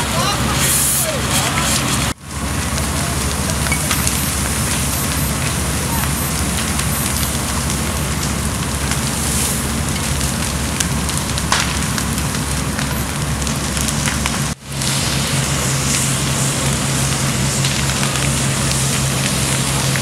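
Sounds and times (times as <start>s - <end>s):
flames crackling with sharp pops: 0.0s - 20.0s
low hum of engines: 0.0s - 20.0s
water hissing and pattering: 0.1s - 20.0s.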